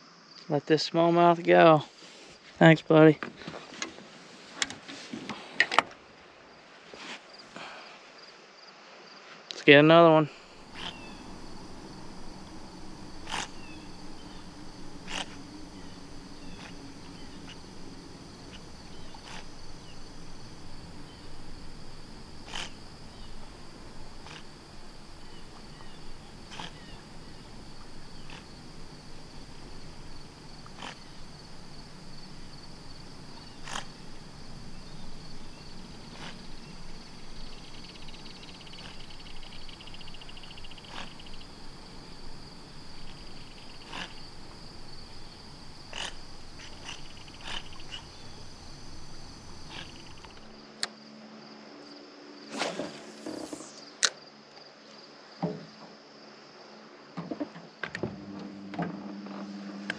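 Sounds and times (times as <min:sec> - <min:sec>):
insects trilling: 0:07.3 - 0:56.8
pulsed insect buzz: 0:10.3 - 0:50.6, 0:52.5 - 0:54.0.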